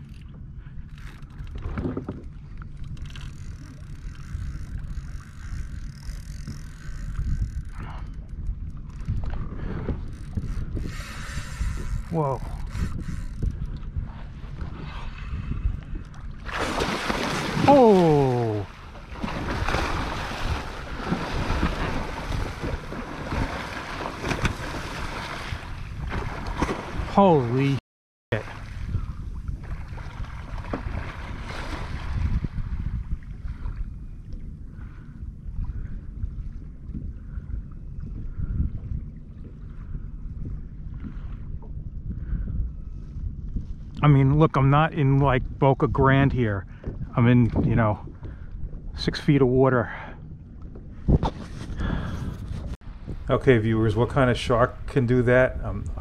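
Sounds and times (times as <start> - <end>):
water lapping around kayak: 0.0 - 56.0
wind buffeting microphone: 0.0 - 56.0
water churning and splashing: 16.2 - 32.6.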